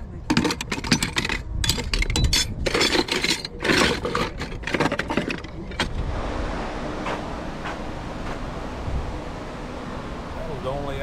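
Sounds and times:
metal buckles clinking in wooden box: 0.2s - 5.9s.

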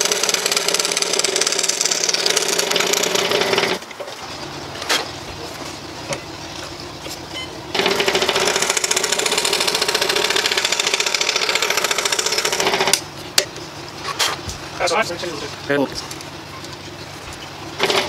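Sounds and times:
scroll saw cutting wood: 0.0s - 3.8s, 7.7s - 13.0s, 17.8s - 18.0s.

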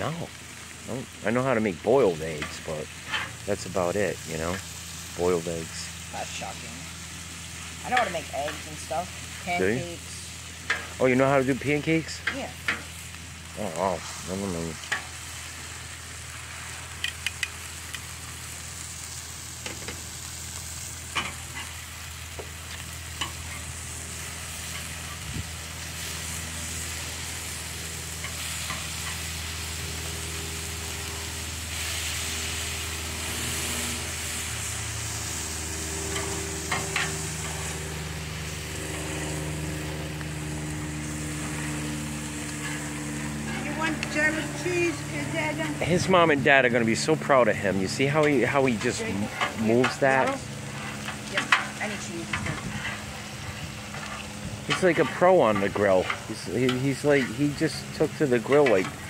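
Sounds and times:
meat sizzling on a griddle: 0.0s - 59.0s
higher droning tone: 17.7s - 59.0s.

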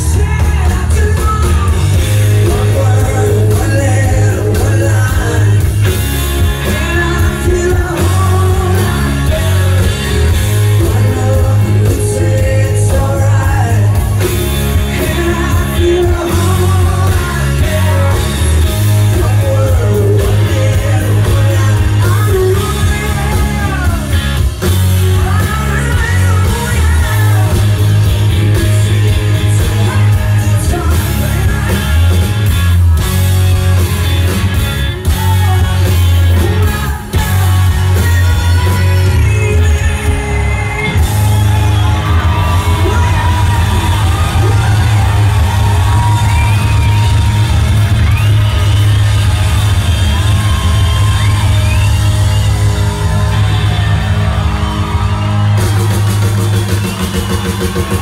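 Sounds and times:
female lead singer: 0.0s - 32.6s, 35.0s - 47.3s
hard rock band playing: 0.0s - 58.0s.

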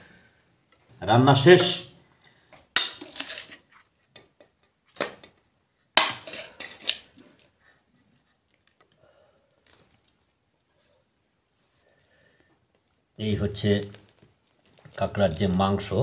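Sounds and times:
spoon scraping and clinking on wok: 2.8s - 4.3s, 6.0s - 7.1s.

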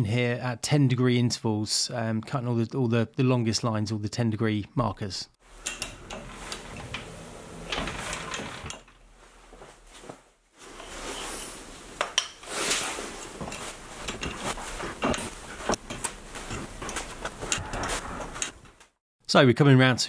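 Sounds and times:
tool scraping workpiece: 5.5s - 9.0s.

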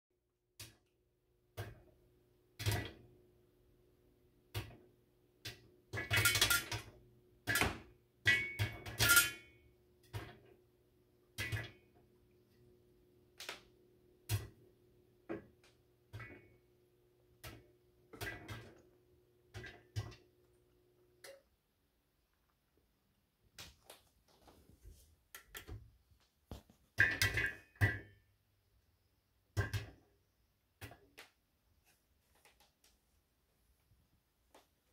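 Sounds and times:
popcorn popping under a lid: 0.6s - 3.2s, 4.3s - 12.6s, 13.2s - 21.4s
metal lid ringing: 8.3s - 9.5s.

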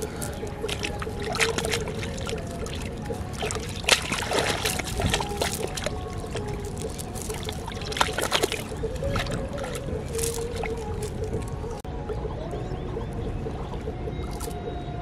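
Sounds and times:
water trickling: 0.0s - 11.8s.

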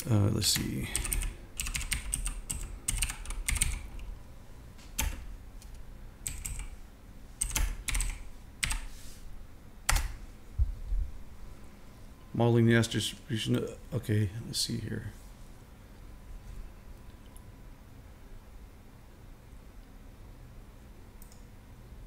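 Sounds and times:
computer keyboard typing: 0.5s - 4.1s, 4.9s - 6.8s, 7.4s - 8.9s, 9.9s - 10.2s.

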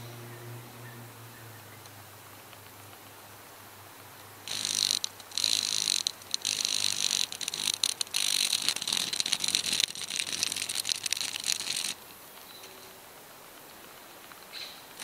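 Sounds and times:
cicada ticking rattle: 4.4s - 12.5s.

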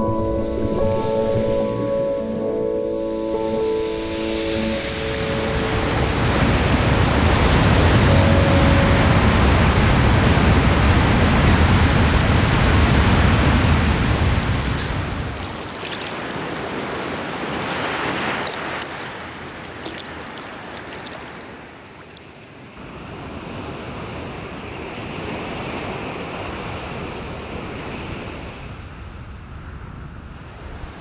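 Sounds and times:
waves breaking over rocks: 10.4s - 22.4s.

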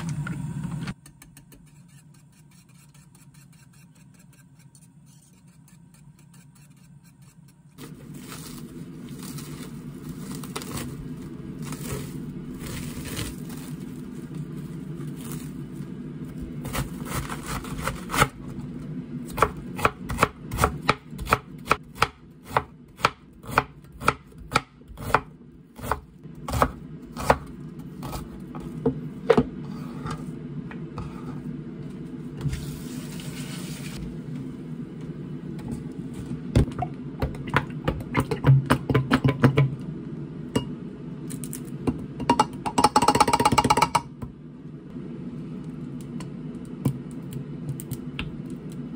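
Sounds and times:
knife slicing cabbage: 16.6s - 18.4s.

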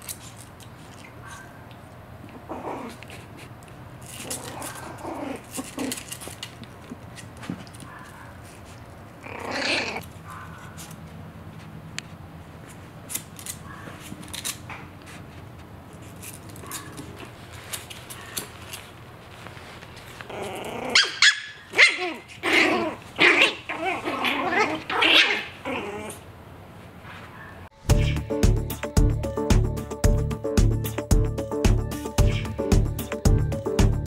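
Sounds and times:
puppy gnawing rawhide: 0.0s - 26.3s
puppies barking and growling: 1.1s - 11.0s, 20.0s - 26.4s.

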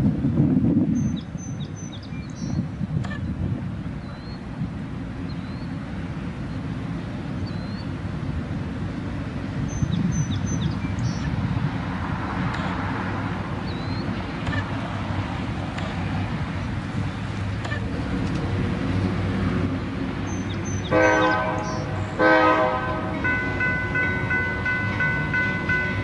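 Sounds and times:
low wind rumble: 0.0s - 26.0s
small birds chirping: 9.6s - 11.4s, 13.6s - 14.7s, 20.2s - 21.0s.

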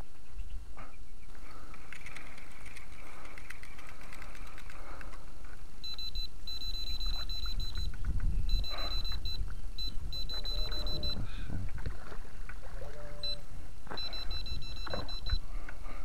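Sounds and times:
bite alarm beeping: 5.8s - 11.3s, 13.2s - 15.4s.

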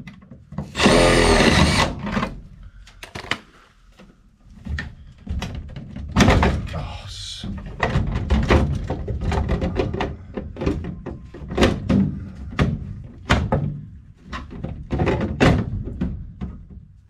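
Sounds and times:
plastic pump and pipe knocking: 7.6s - 16.9s.

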